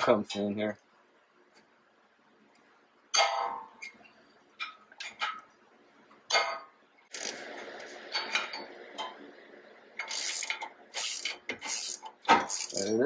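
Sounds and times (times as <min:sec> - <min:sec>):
ratchet clicking: 0:07.1 - 0:07.4, 0:10.0 - 0:12.9.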